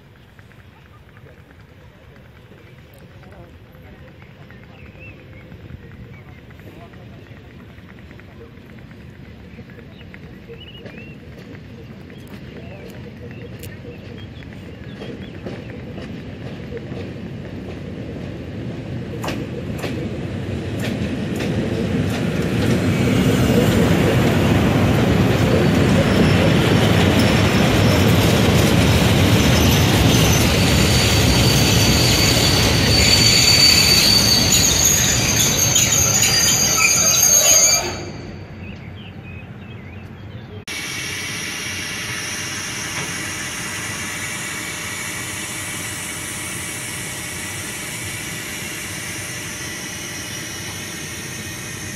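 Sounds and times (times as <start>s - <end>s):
train wheels rumbling on rails: 0.0s - 51.9s
wheel squeal: 25.5s - 38.9s, 41.4s - 51.9s.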